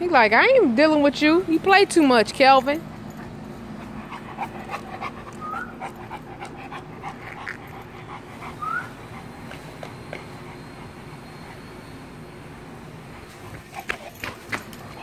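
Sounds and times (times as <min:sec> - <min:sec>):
dog panting: 0:01.3 - 0:12.3, 0:13.0 - 0:15.0.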